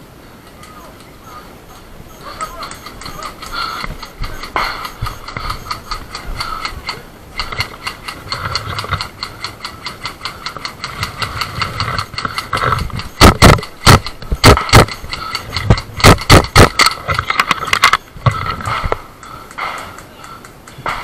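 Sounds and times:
gear and rifle rattling: 2.6s - 19.0s
loud sharp knocks: 3.9s - 6.7s, 12.3s - 16.8s.

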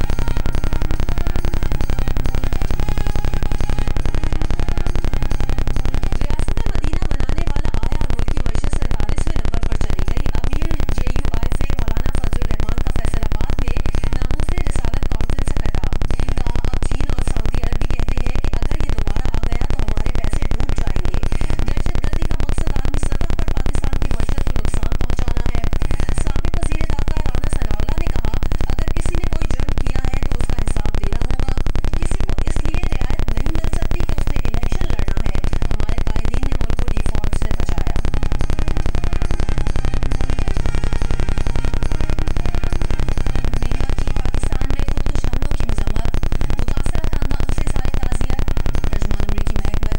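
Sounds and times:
loud pulsing low buzz: 0.0s - 49.9s.

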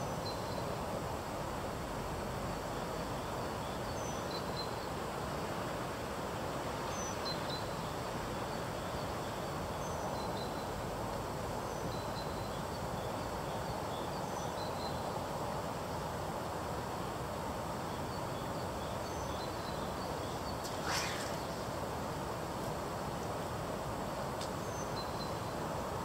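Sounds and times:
short high bird chirps: 20.6s - 21.7s.

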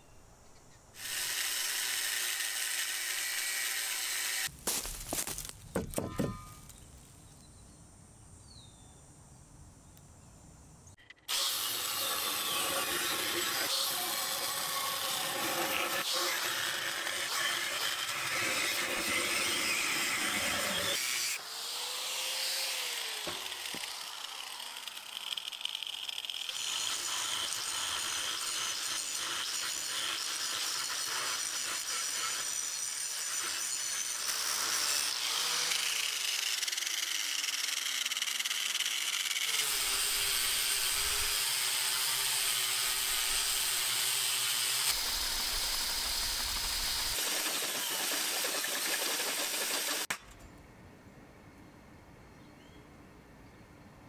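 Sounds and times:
angle grinder cutting steel: 1.0s - 4.5s, 11.0s - 50.2s
metal knocks: 5.7s - 6.7s.

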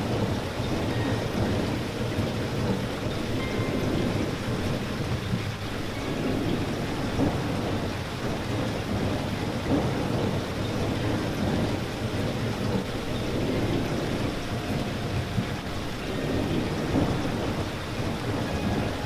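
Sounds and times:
steady rain patter: 0.0s - 19.0s.

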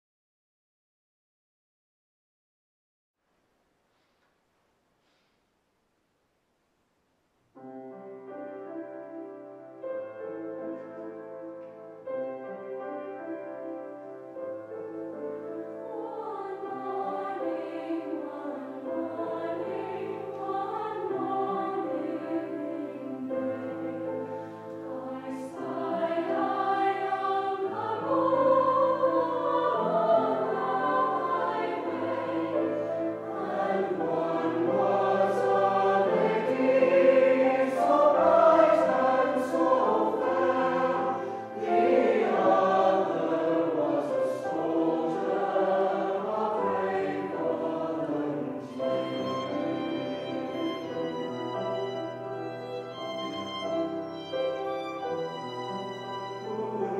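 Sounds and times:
mixed-voice choir singing: 14.5s - 56.9s.

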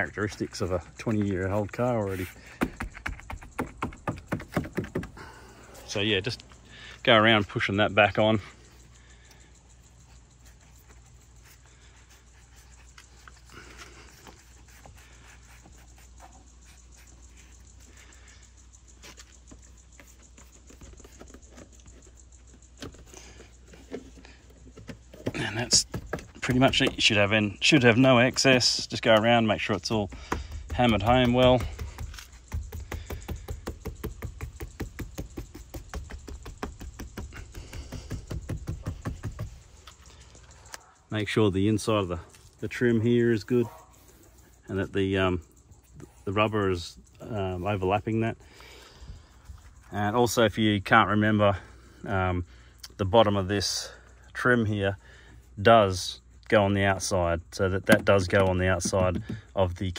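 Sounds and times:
hand tapping rubber weatherstrip: 1.0s - 5.4s, 25.0s - 40.2s, 57.8s - 59.7s.

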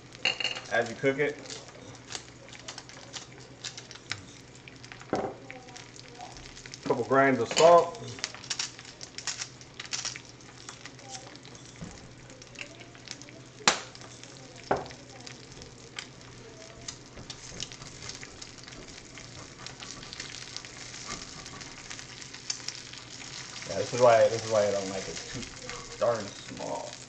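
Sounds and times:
eggs sizzling in a skillet: 0.0s - 27.0s
crackling pops: 8.1s - 27.0s.

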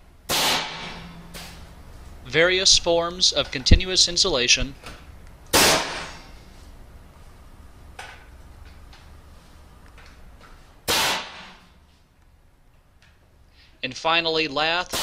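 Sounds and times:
pneumatic nailer shot: 0.3s - 1.6s, 5.5s - 6.3s, 10.8s - 11.7s.

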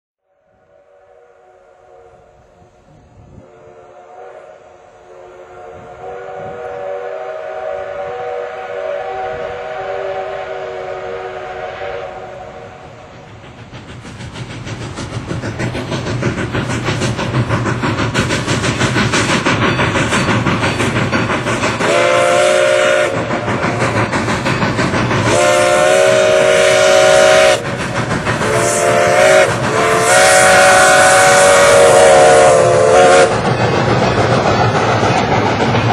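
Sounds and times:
low rumble of train: 0.2s - 35.9s
steam whistle blasts: 0.4s - 2.6s, 3.4s - 13.0s, 21.8s - 23.3s, 25.2s - 27.7s, 28.4s - 33.4s
steam locomotive exhaust beats: 0.4s - 35.9s.

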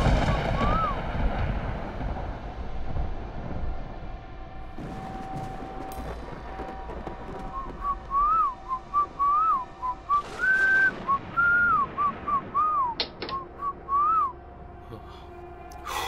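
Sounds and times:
person whistling a slow tune: 7.5s - 16.0s.

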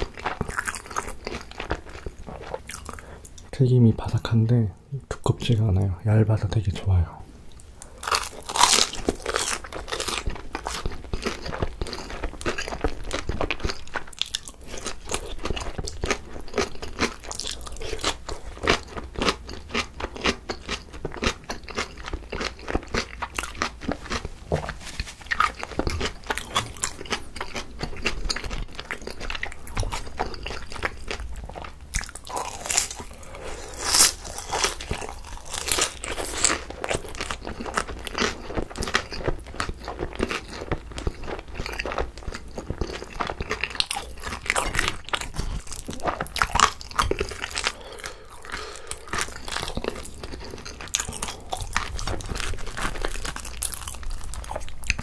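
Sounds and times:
crunchy biting and chewing: 0.0s - 3.1s, 7.8s - 55.0s.

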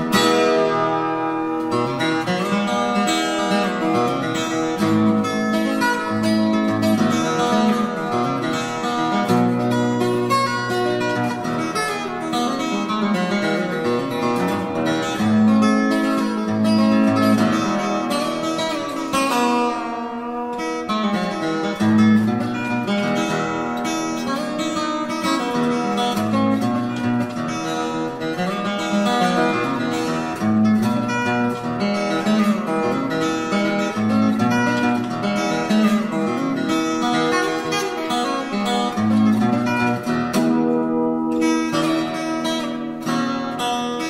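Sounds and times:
picked acoustic guitar: 0.0s - 44.0s.

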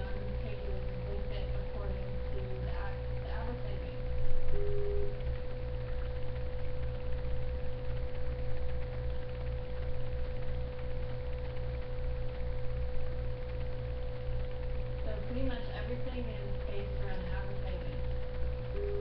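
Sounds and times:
constant pure tone: 0.0s - 19.0s
low buzzing hum: 0.0s - 19.0s.

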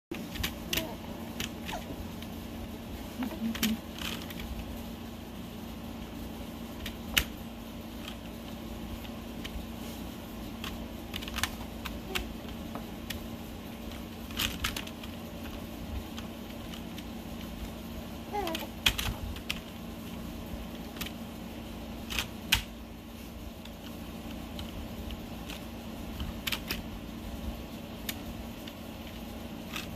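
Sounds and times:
steady low hum: 0.1s - 29.9s
mechanical keyboard keys clacking: 6.8s - 7.3s, 10.6s - 12.3s, 13.9s - 17.1s, 18.4s - 19.6s, 24.6s - 26.8s.

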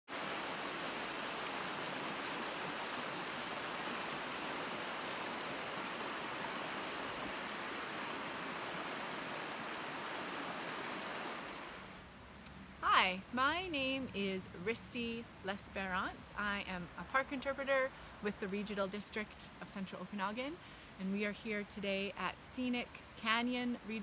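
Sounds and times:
creek rushing over rocks: 0.1s - 12.0s.

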